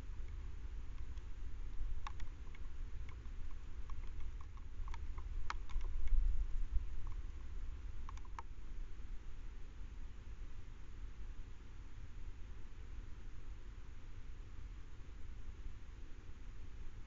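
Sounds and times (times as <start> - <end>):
fox chewing with crunching: 0.9 - 8.5.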